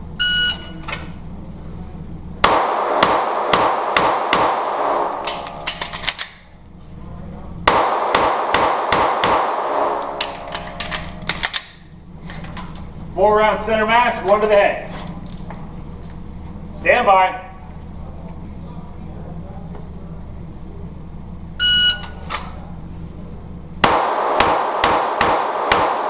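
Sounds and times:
rapid pistol fire echoing: 2.4s - 6.0s, 7.7s - 11.6s, 23.8s - 26.0s.

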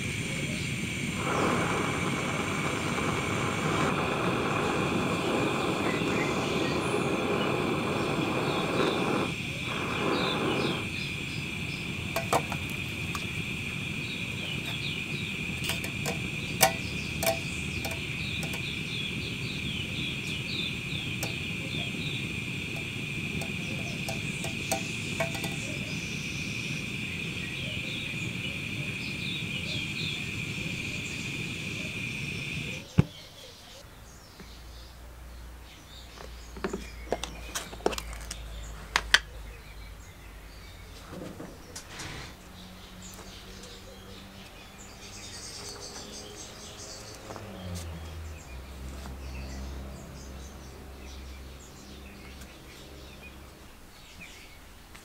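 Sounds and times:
hot metal sizzling in water: 0.0s - 33.0s
blowtorch hissing: 0.0s - 33.2s, 41.8s - 54.4s.

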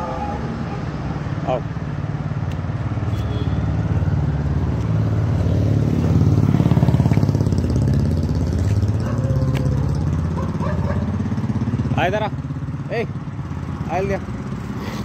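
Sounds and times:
engine running steadily: 6.0s - 15.0s.

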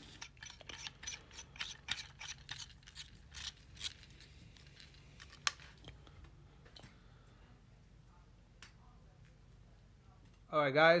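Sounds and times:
metal and rubber parts clicking: 0.1s - 5.9s.

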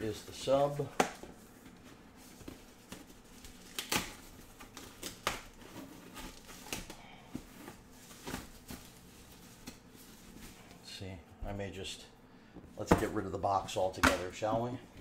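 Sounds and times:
foam and cardboard packing crinkling: 0.0s - 10.7s.

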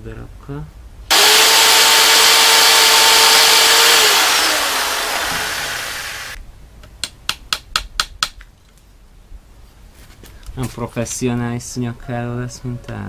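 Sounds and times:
power tool whining: 1.1s - 6.4s.

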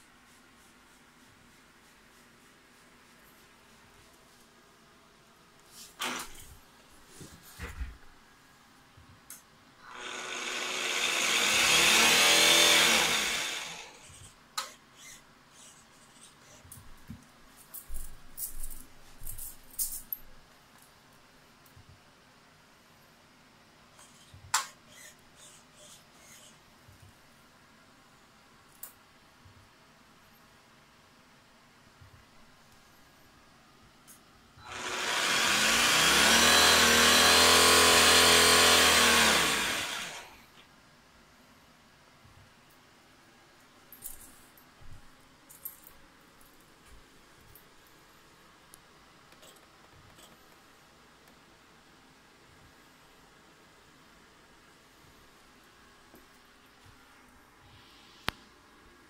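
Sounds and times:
electric motor whine: 9.9s - 14.1s, 34.6s - 40.4s.

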